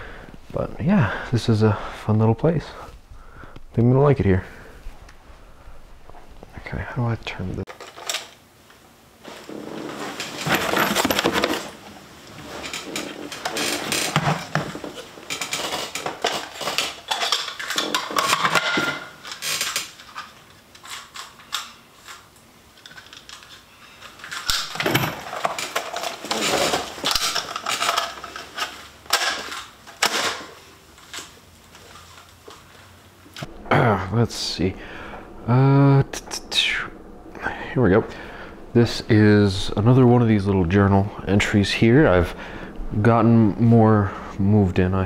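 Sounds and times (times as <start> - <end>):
metal clinking and rattling: 9.3 - 32.6.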